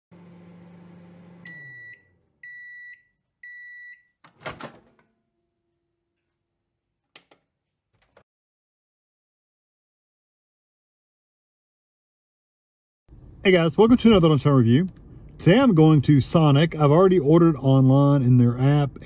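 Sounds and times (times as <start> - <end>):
microwave oven humming: 0.1 - 6.0
microwave high beeps: 1.3 - 4.2
microwave door clunk: 4.3 - 5.1.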